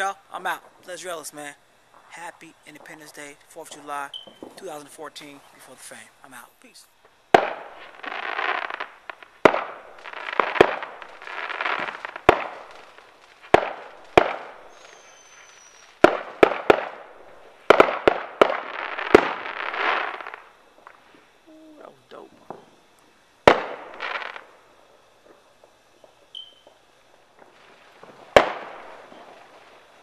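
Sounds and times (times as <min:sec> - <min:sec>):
fireworks bangs: 0:00.0 - 0:21.4, 0:22.1 - 0:30.0
sizzling crackle: 0:00.0 - 0:30.0
faint high whistle: 0:04.1 - 0:04.5, 0:14.7 - 0:16.0, 0:26.3 - 0:26.8.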